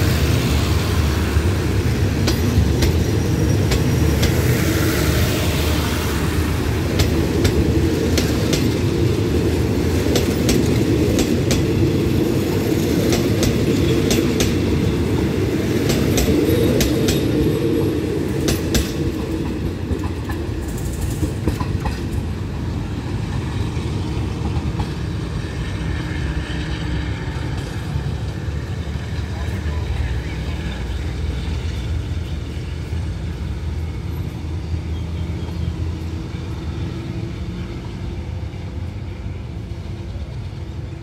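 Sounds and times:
train rumbling past: 0.0s - 41.0s
wheels clicking over rail joints: 6.6s - 23.5s.

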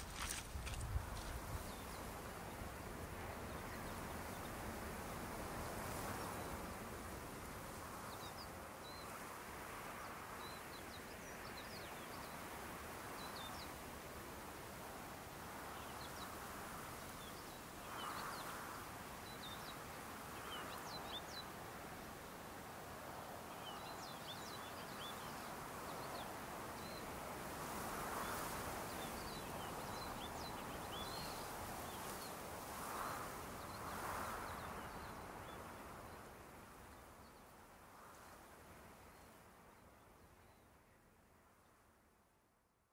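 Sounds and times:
small birds chirping: 0.0s - 2.1s.

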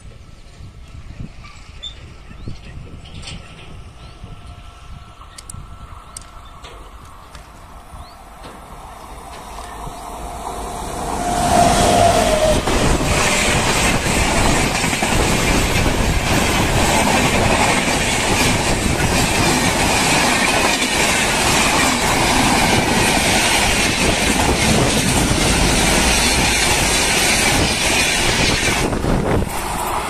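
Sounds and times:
train rushing past: 0.0s - 30.0s
wheels clattering over rail joints: 0.5s - 4.6s, 11.2s - 30.0s.

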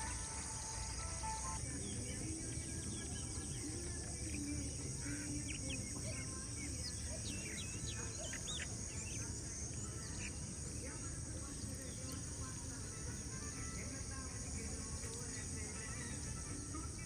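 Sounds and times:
birds chirping and whistling: 0.0s - 10.7s
high-pitched insect drone: 0.0s - 17.0s.

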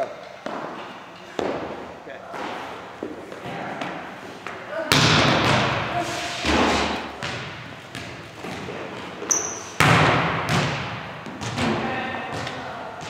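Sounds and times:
volleyballs smacking on hardwood floor: 3.8s - 12.8s
high shoe squeak: 9.2s - 9.8s.

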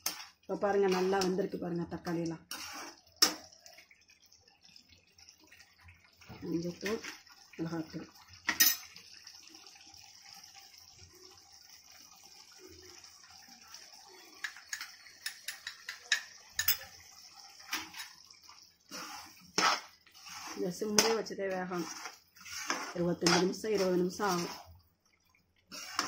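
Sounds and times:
sauce simmering and sputtering: 0.0s - 26.0s
steel spoons clinking on pan: 8.5s - 8.9s, 14.4s - 16.9s.

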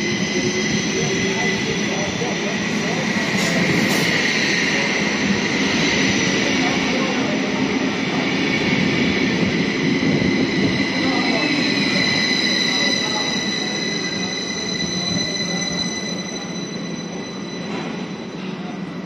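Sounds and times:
high ringing tone: 10.5s - 19.0s.

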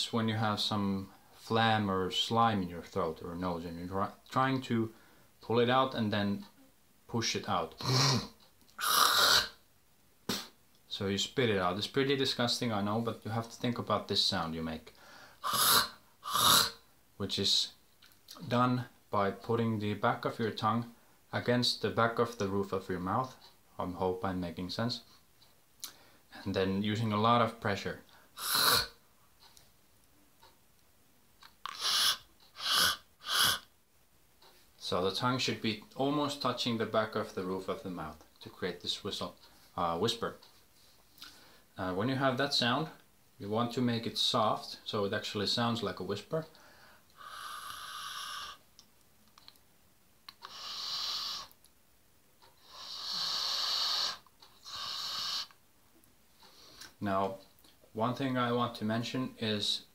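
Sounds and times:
beatbox tongue hiss: 7.8s - 9.6s, 10.3s - 10.6s, 15.4s - 16.8s, 28.4s - 29.0s, 31.6s - 33.7s, 47.2s - 48.6s, 50.3s - 51.6s, 52.6s - 55.6s
person making harsh throat rasps: 7.8s - 9.6s, 15.4s - 16.8s, 28.4s - 29.0s, 31.6s - 33.7s, 47.2s - 48.6s, 50.3s - 51.6s.

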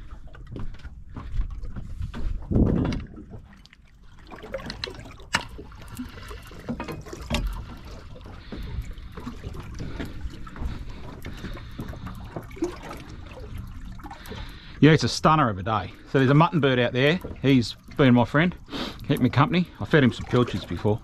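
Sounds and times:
wind rumbling on microphone: 0.0s - 3.5s
water lapping against boat hull: 0.0s - 21.0s.

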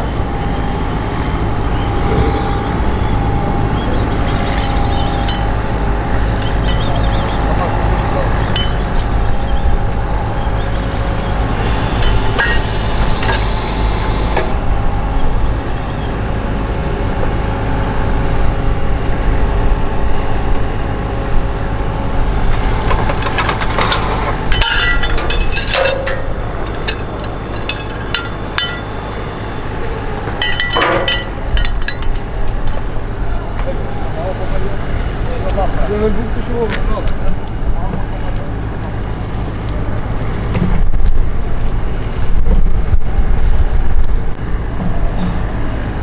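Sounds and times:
engine humming: 0.0s - 46.0s
metal clinks and knocks: 23.2s - 29.1s, 30.4s - 32.8s.

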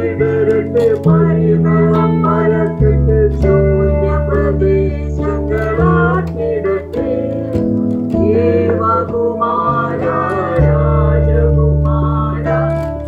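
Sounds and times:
instrumental backing chords: 0.0s - 13.0s
man and woman singing together: 0.0s - 13.0s.

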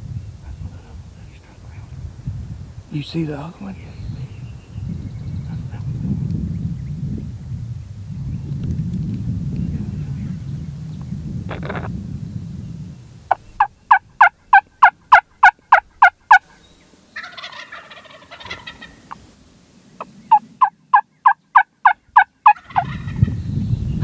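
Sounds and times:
turkey call yelps: 13.6s - 16.4s, 17.2s - 19.2s, 20.3s - 23.2s.

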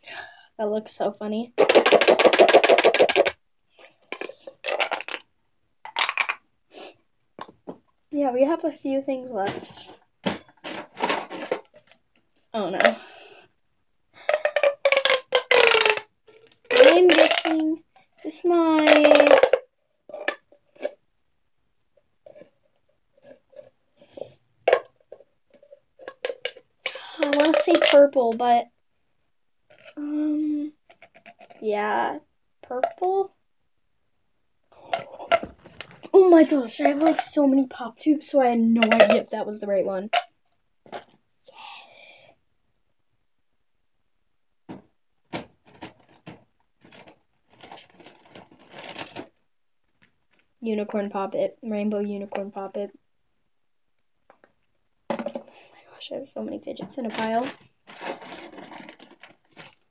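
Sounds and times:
plastic toys clicking and rustling: 1.6s - 3.4s, 4.0s - 5.3s, 5.9s - 6.4s, 10.2s - 13.0s, 14.3s - 21.0s, 23.2s - 28.6s, 30.8s - 31.6s, 34.9s - 37.5s, 38.8s - 39.3s, 45.3s - 50.4s, 56.8s - 59.9s
pop tube toy clicks and pops: 14.4s - 17.6s.

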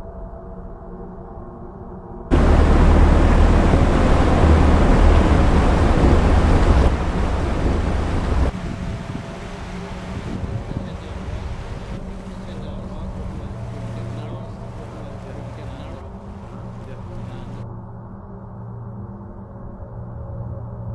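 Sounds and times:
soft music: 0.0s - 20.9s
water rushing: 2.3s - 17.6s
wind noise: 2.3s - 17.6s
vehicle low rumble: 2.3s - 18.0s.

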